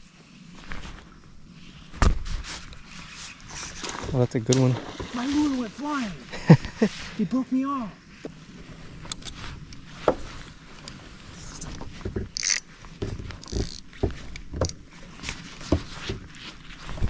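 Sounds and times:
fishing tackle clicks and thumps: 12.1s - 15.3s.

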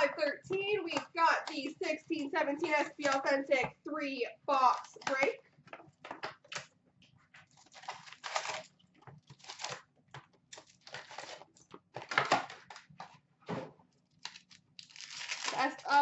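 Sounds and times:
card packs rustling and crinkling: 7.3s - 16.0s.

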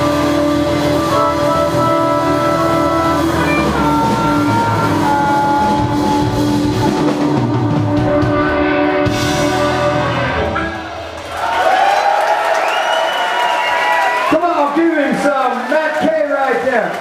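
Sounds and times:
harmonica long notes: 0.0s - 11.0s
electric guitar: 0.0s - 11.3s
drum kit: 0.0s - 12.0s.

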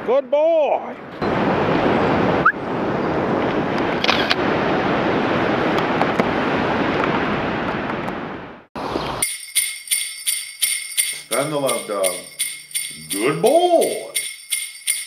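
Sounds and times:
wind: 0.0s - 15.0s
ocean surf: 0.8s - 8.7s.

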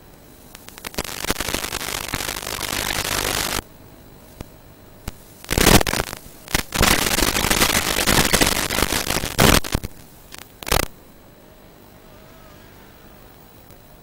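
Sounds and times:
hiss and crackling static: 0.0s - 14.0s.

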